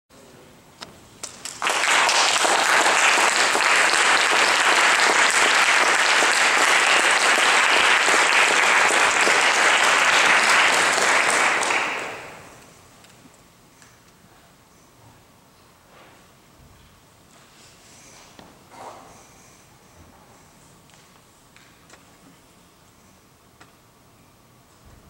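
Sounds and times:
audience applauding: 1.3s - 12.6s.

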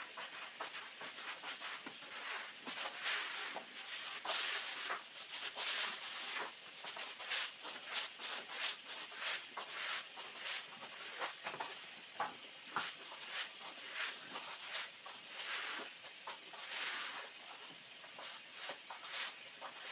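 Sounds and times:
broom scrubbing a wet rug: 0.0s - 19.9s.

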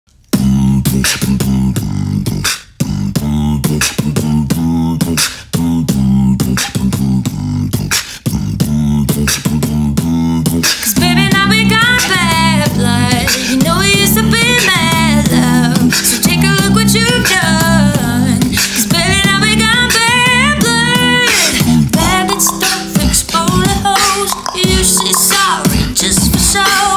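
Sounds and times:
beatboxed drum beat: 0.2s - 26.9s
low bass line: 0.4s - 25.0s
woman singing: 10.9s - 26.9s.

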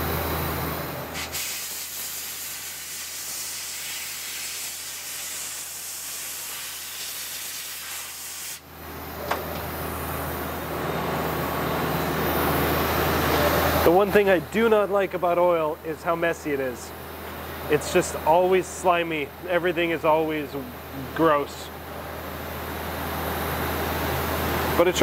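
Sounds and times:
machine hum: 0.0s - 1.2s, 8.6s - 25.0s
compressed air blow gun hissing: 1.2s - 8.6s.

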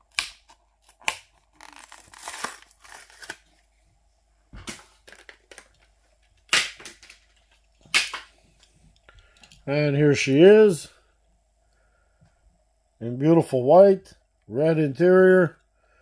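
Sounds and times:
plastic packaging snapping: 0.0s - 3.5s, 4.6s - 5.8s, 6.4s - 8.3s
plastic crinkling and tearing: 0.0s - 3.6s.

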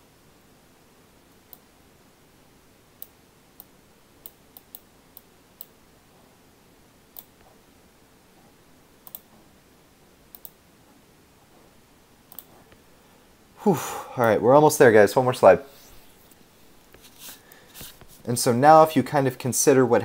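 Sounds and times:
faint room hiss: 0.0s - 20.0s
mouse clicks: 7.2s - 7.4s, 9.0s - 9.3s, 10.3s - 10.6s, 12.3s - 12.8s.

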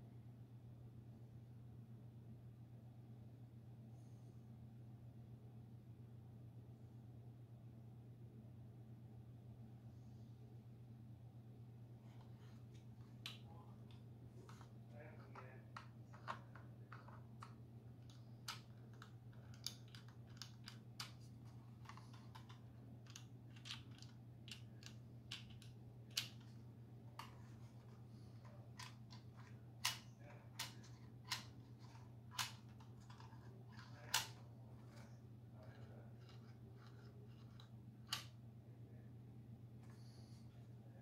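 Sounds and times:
steady low hum: 0.0s - 41.0s
plastic clicks and taps: 15.7s - 21.2s.

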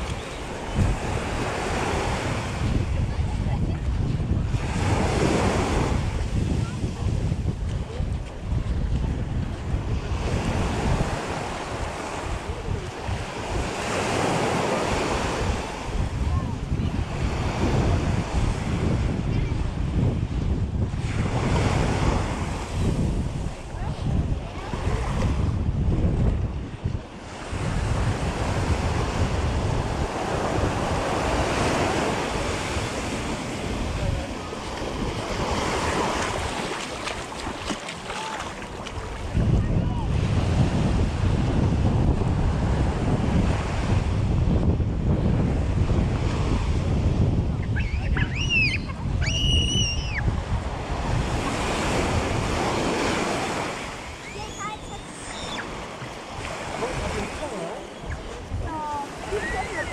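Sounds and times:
small waves breaking on sand: 0.0s - 47.4s, 48.0s - 59.9s
wind buffeting microphone: 0.0s - 59.9s
small surf breaking on sand: 27.2s - 41.2s.

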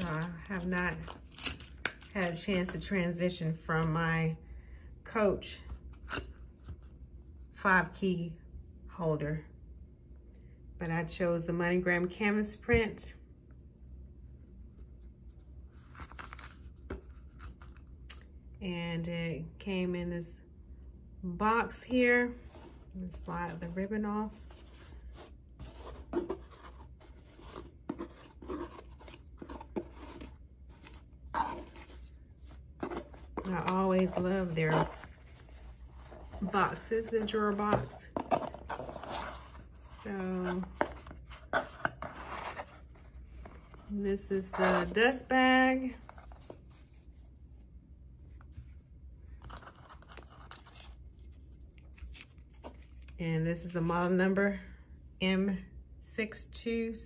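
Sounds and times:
hands rustling a box: 22.4s - 39.7s.

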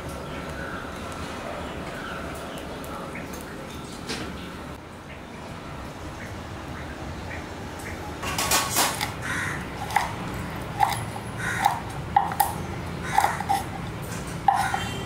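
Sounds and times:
knife chopping on wooden board: 11.6s - 13.6s.

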